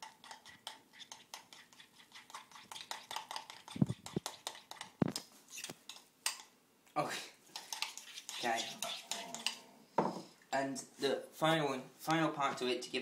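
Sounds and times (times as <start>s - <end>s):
utensil scraping a bowl: 0.0s - 6.0s, 7.5s - 10.2s.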